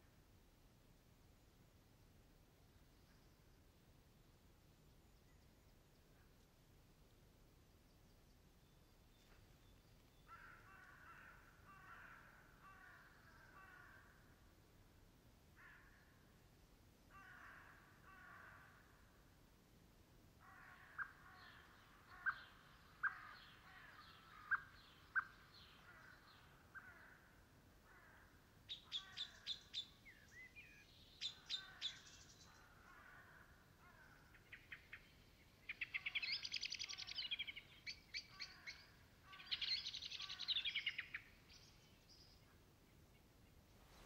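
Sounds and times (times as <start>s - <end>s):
small birds chirping: 20.8s - 27.2s, 28.7s - 32.8s, 34.0s - 44.0s.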